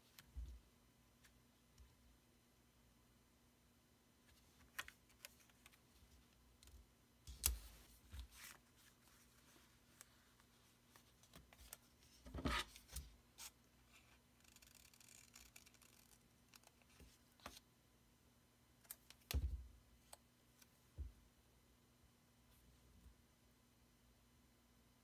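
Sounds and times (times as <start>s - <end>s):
paper rustling: 7.3s - 13.1s.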